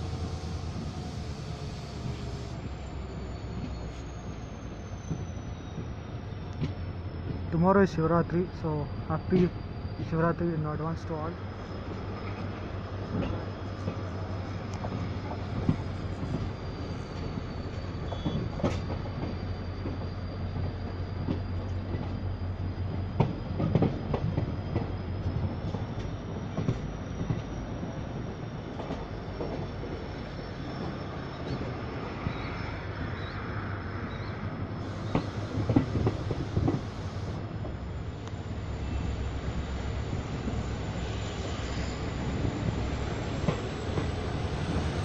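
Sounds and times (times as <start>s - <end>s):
train running low drone: 0.0s - 45.0s
wheels clicking over rails: 34.9s - 38.4s.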